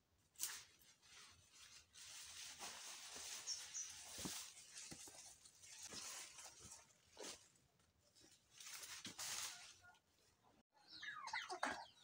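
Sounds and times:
rustling and snapping plants: 0:00.3 - 0:09.8.

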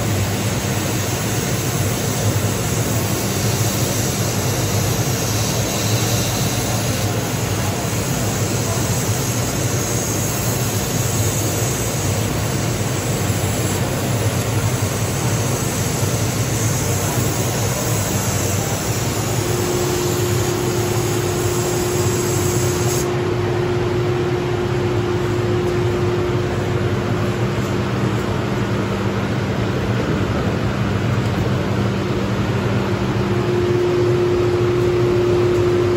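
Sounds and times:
laser cutter rushing hum: 0:00.0 - 0:35.9.

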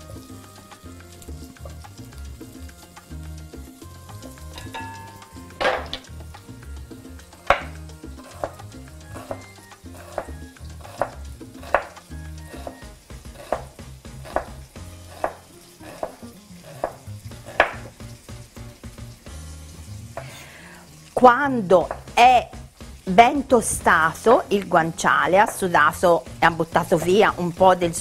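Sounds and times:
meat sizzling in a pan: 0:00.0 - 0:28.0
knife knocking on cutting board: 0:07.5 - 0:07.8, 0:14.3 - 0:14.6, 0:16.8 - 0:18.0.

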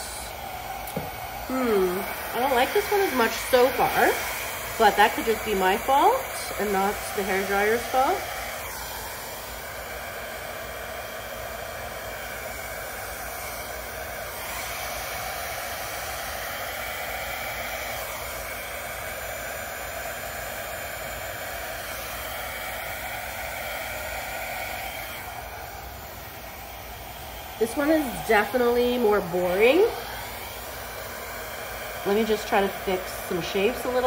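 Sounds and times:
hair dryer running: 0:00.0 - 0:34.0.

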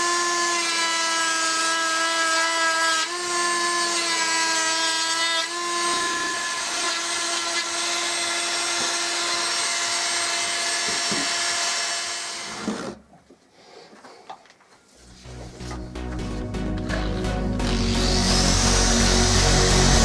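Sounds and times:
burr grinding wood: 0:04.8 - 0:13.0, 0:15.0 - 0:20.0.

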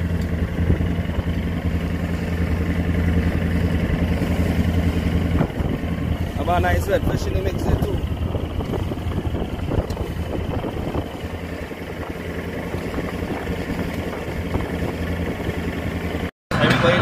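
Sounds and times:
boat engine humming: 0:00.0 - 0:17.0
wind-like noise: 0:07.7 - 0:15.7.

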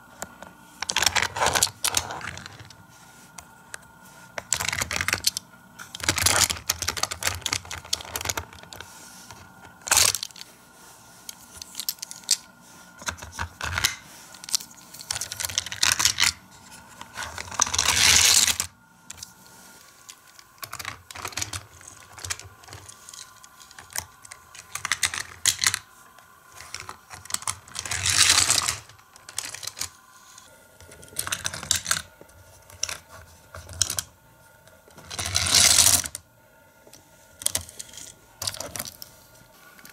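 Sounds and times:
plastic scraping: 0:00.1 - 0:02.8
plastic parts clicking and knocking: 0:04.4 - 0:10.5, 0:20.0 - 0:25.9, 0:32.7 - 0:34.1, 0:37.4 - 0:39.0.

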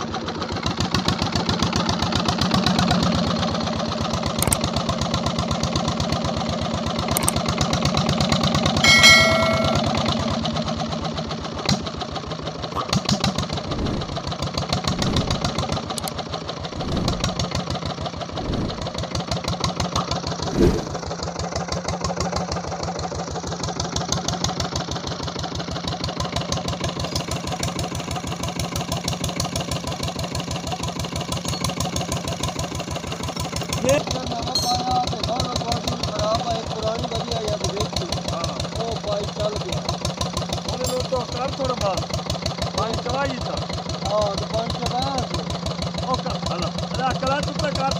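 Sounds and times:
diesel engine knocking: 0:00.0 - 0:20.4, 0:21.0 - 0:47.9
short high-pitched tone: 0:08.8 - 0:09.9.

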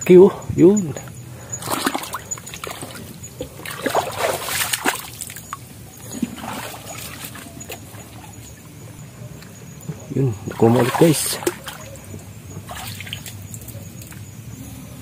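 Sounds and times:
shallow water splashing: 0:01.3 - 0:08.9, 0:09.9 - 0:14.2.

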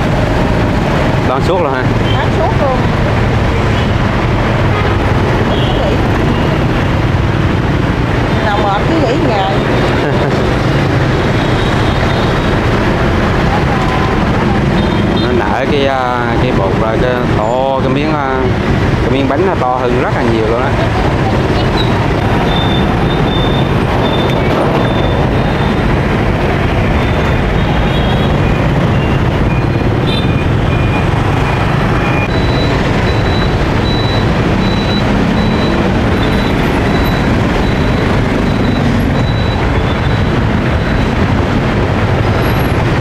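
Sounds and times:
road traffic noise: 0:00.0 - 0:43.0
faint high beeps: 0:30.4 - 0:41.1.

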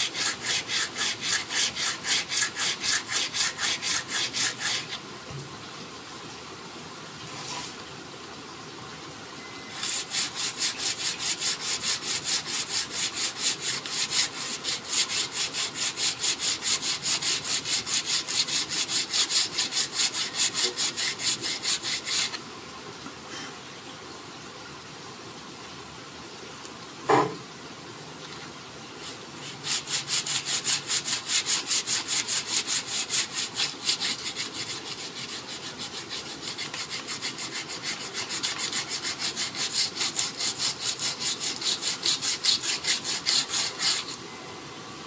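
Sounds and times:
sandpaper rubbing on wood: 0:00.0 - 0:05.0, 0:09.8 - 0:22.4, 0:29.0 - 0:44.2.

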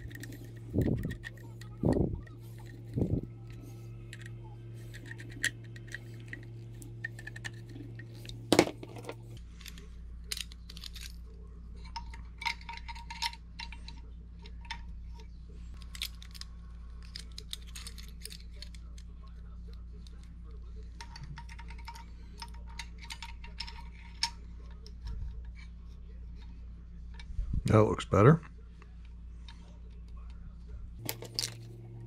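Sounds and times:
small metal parts clicking: 0:00.0 - 0:19.1, 0:20.9 - 0:25.6, 0:31.0 - 0:31.7.

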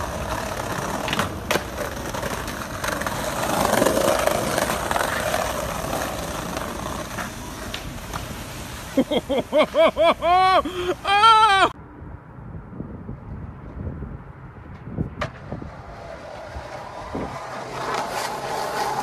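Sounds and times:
skateboard clicks: 0:00.0 - 0:08.4, 0:14.7 - 0:19.0
skateboard wheels rolling on bricks: 0:00.0 - 0:10.9, 0:14.6 - 0:19.0
person yelping: 0:10.0 - 0:11.8.

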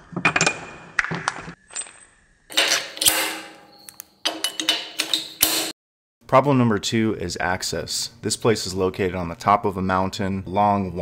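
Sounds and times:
metal bolts clinking: 0:02.5 - 0:05.7.

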